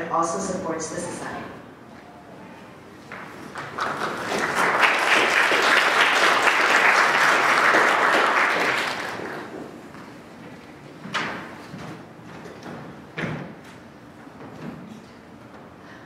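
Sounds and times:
audience applauding: 0:03.1 - 0:09.8.

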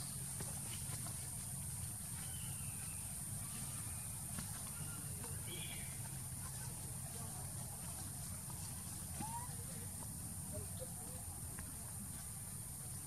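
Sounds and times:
faint high chirps: 0:02.1 - 0:06.1.

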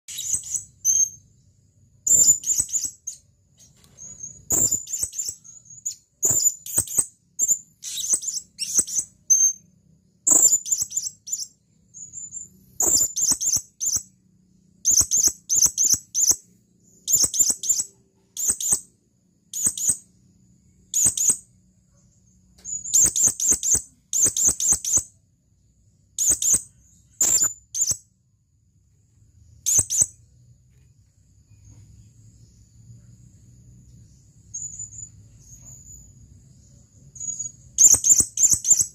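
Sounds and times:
parrot chirping: 0:00.1 - 0:01.4, 0:02.0 - 0:14.2, 0:14.8 - 0:20.2, 0:20.8 - 0:21.5, 0:22.2 - 0:25.2, 0:26.2 - 0:28.1, 0:29.6 - 0:30.2, 0:37.0 - 0:38.9.

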